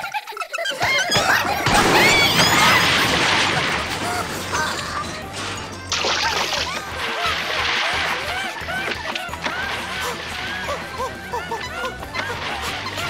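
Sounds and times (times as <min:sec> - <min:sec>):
squeaky cartoon voices: 0:00.0 - 0:02.9
background music: 0:00.8 - 0:13.0
cartoon crash effect: 0:01.2 - 0:13.0.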